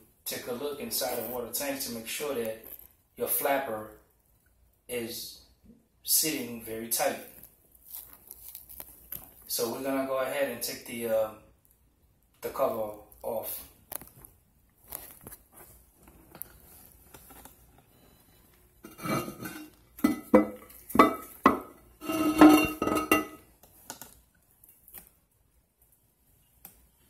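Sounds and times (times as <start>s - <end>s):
porcelain lid clinking on ceramic tank: 18.9s - 23.4s.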